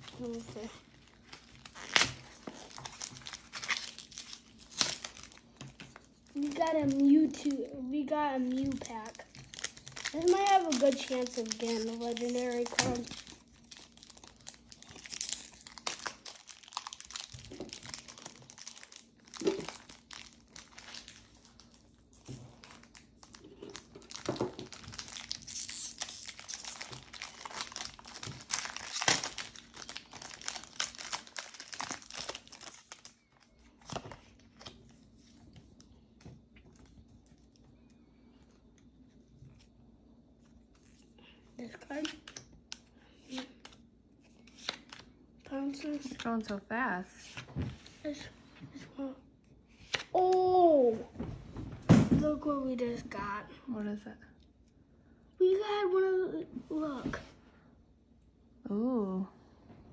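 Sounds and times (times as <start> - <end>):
foil wrapper tearing and crinkling: 0.1 - 7.6, 8.4 - 34.8.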